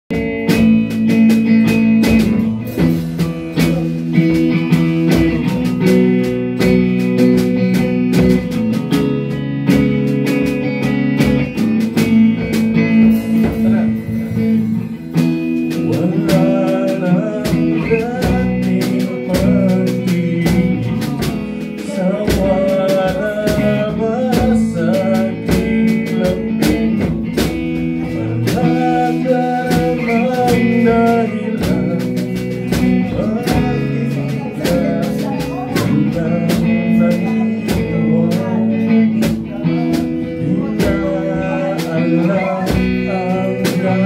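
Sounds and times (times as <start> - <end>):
amplified electric guitar: 0.1 - 44.0
steady beat: 0.1 - 44.0
man singing into microphone: 12.3 - 44.0.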